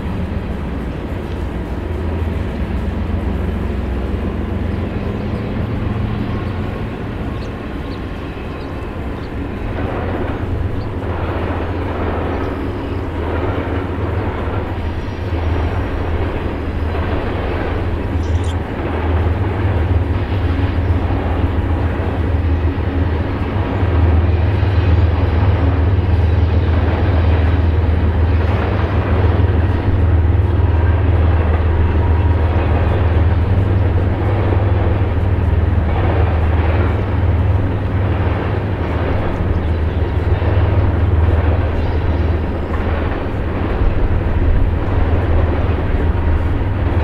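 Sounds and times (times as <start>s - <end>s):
diesel locomotive engine rumble: 0.0s - 47.0s
wheels clattering on rails: 0.0s - 47.0s.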